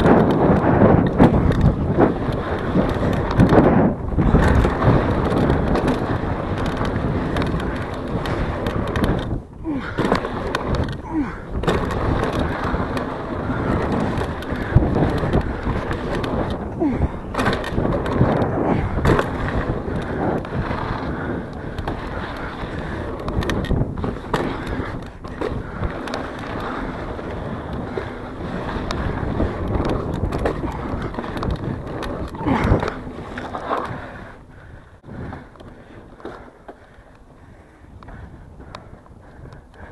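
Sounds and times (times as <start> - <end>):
bike knocking and rattling: 0.0 - 39.9
bike tyres rolling on dirt: 0.0 - 39.9.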